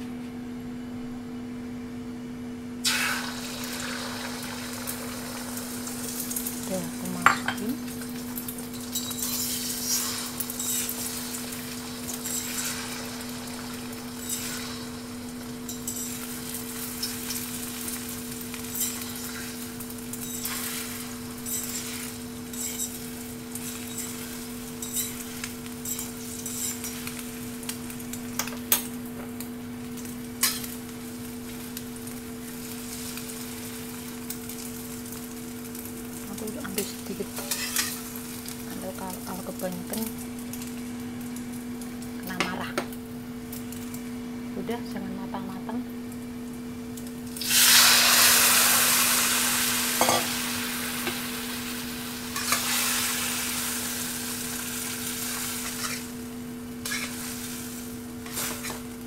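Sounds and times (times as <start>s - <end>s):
eggs sizzling in hot oil: 2.8s - 59.0s
fork scraping and clinking on wok: 8.7s - 13.6s, 14.2s - 15.0s, 15.7s - 16.4s, 18.7s - 19.5s, 20.2s - 27.2s, 37.4s - 38.0s.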